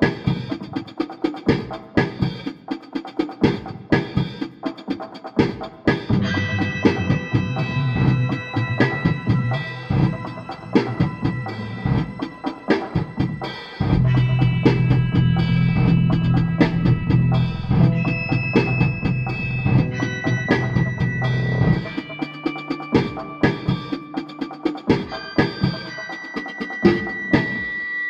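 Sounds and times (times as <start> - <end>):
drum kit beat: 0.0 - 27.7
held low bass note: 13.9 - 21.6.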